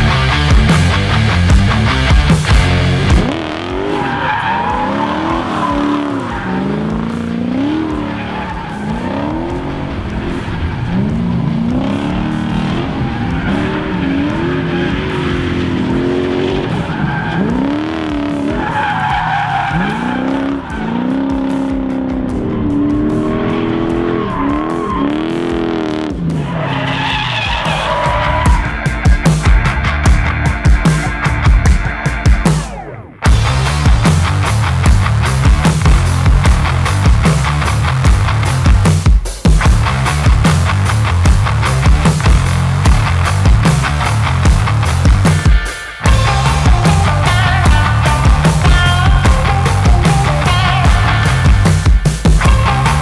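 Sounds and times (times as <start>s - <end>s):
engine revving: 0.0s - 31.8s, 32.4s - 53.0s
tyres squealing: 3.7s - 11.4s, 16.6s - 25.7s, 26.4s - 28.8s.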